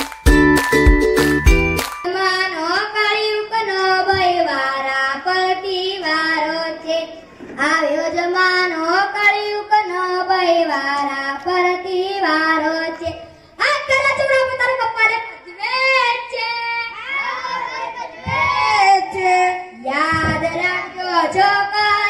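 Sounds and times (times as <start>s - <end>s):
child singing: 2.1s - 22.0s.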